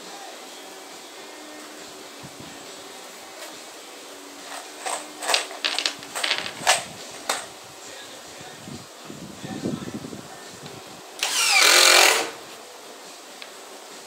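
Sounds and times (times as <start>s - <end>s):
metal screws clattering on plywood: 4.5s - 7.4s.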